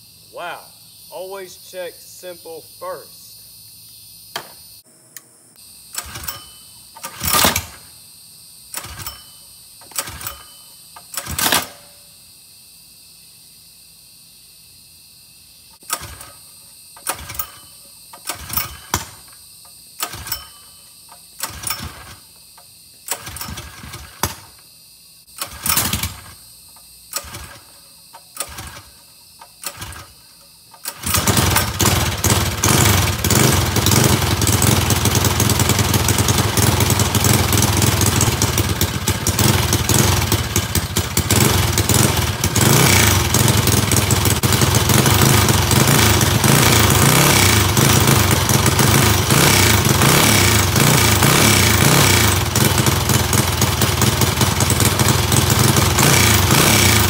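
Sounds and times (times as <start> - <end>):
recoil starter yanks: 15.8 - 16.4, 17.0 - 19.3, 20.0 - 22.2, 23.0 - 24.5, 27.1 - 57.0
engine running loudly: 31.0 - 57.0.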